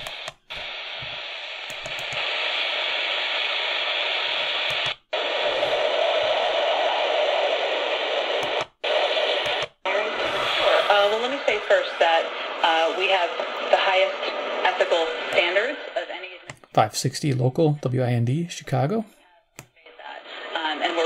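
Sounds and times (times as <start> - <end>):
radio static and hiss: 0.0 - 19.1, 19.8 - 21.0.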